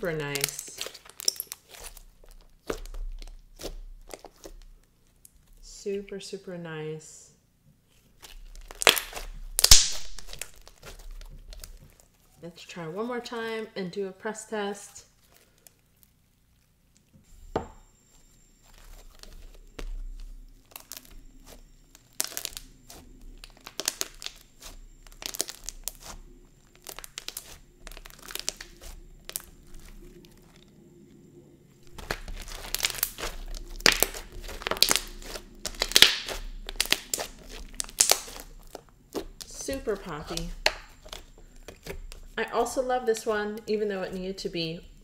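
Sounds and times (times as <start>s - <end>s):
slime clicking and crackling: 0.0s - 5.6s, 8.2s - 12.2s, 18.6s - 30.7s, 31.8s - 43.8s.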